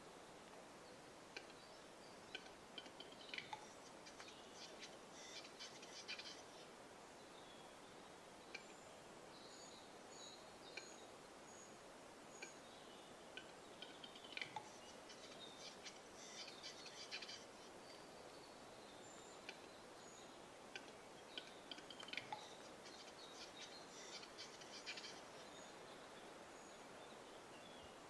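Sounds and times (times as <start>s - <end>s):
small songbirds calling: 0.8s - 28.0s
bird display clicks: 1.3s - 1.6s, 2.3s - 4.8s, 13.4s - 14.7s, 19.4s - 19.8s, 20.7s - 22.6s.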